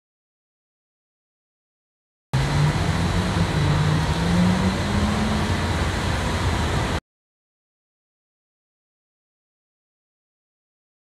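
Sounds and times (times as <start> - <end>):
loud rushing noise with hum: 2.4 - 7.0.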